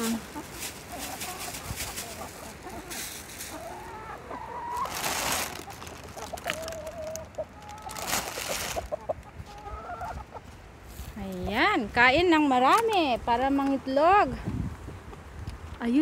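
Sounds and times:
rustling: 0:00.0 - 0:03.9, 0:04.6 - 0:09.7
hens clucking: 0:00.0 - 0:10.8.

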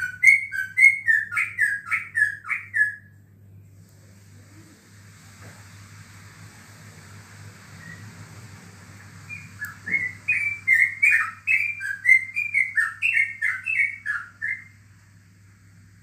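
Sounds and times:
bird singing whistled notes: 0:00.0 - 0:03.1, 0:07.8 - 0:08.1, 0:09.3 - 0:14.8
faint low hum: 0:00.0 - 0:16.0.

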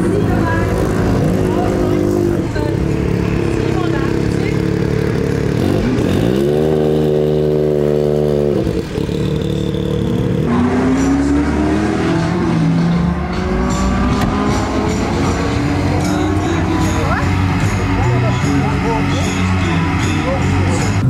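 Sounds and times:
racing car engine revving: 0:00.0 - 0:21.0.

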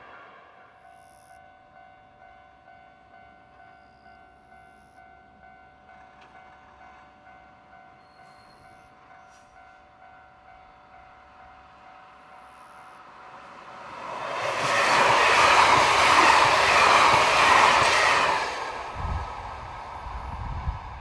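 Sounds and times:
distant train approaching: 0:00.0 - 0:21.0
pulsing ringing tone: 0:00.6 - 0:02.4.

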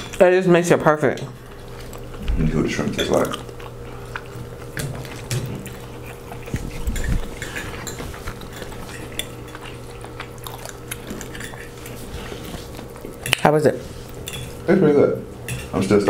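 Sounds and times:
steady low hum: 0:00.0 - 0:16.0
forks scraping on plates: 0:02.6 - 0:14.7, 0:15.4 - 0:16.0.

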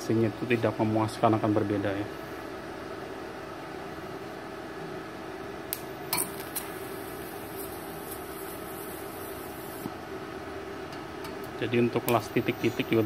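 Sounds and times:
machine hum: 0:00.0 - 0:13.0
welding arc hissing: 0:05.8 - 0:09.9.

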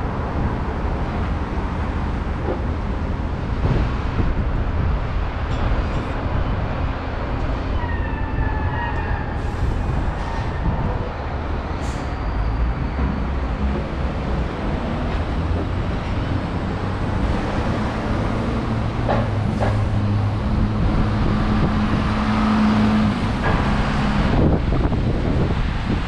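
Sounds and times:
city road traffic: 0:00.0 - 0:26.0
heavy vehicle engine droning: 0:08.4 - 0:26.0.

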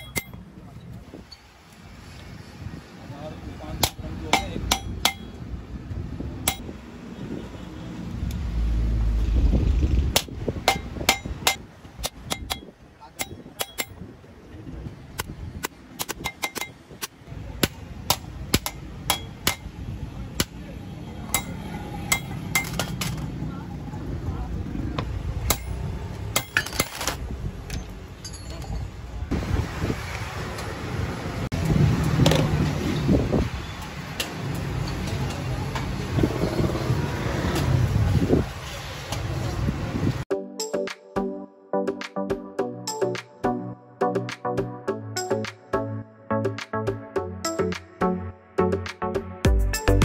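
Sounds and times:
hammer striking metal: 0:00.0 - 0:00.4, 0:03.8 - 0:05.4, 0:06.4 - 0:06.7, 0:10.2 - 0:14.1, 0:15.6 - 0:19.8, 0:21.3 - 0:23.2, 0:25.4 - 0:26.8
light metal clinks: 0:27.7 - 0:29.0
music: 0:40.3 - 0:50.0.

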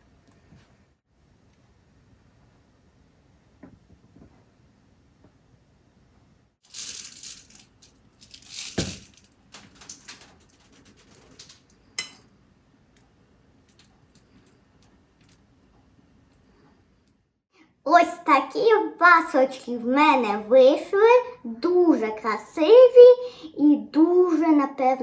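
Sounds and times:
sprinkles rattling in plastic shaker: 0:06.6 - 0:11.7.

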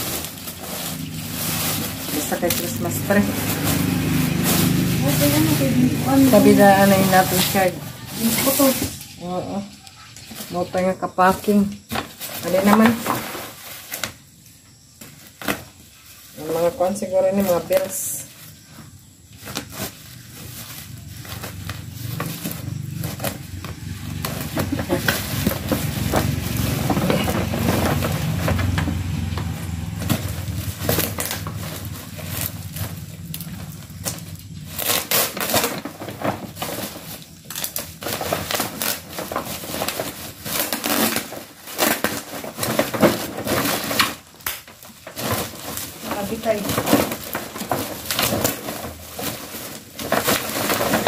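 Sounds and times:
plastic wrapping crinkling: 0:00.0 - 0:51.0
scissors cutting plastic: 0:19.4 - 0:51.0.

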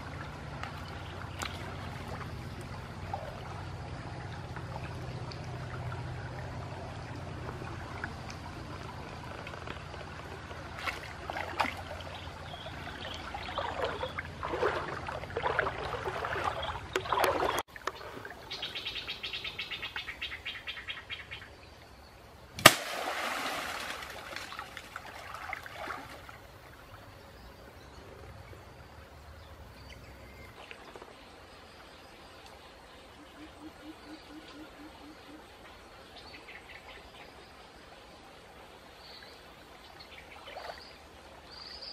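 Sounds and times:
water sloshing and splashing: 0:00.0 - 0:18.7, 0:22.6 - 0:27.1.

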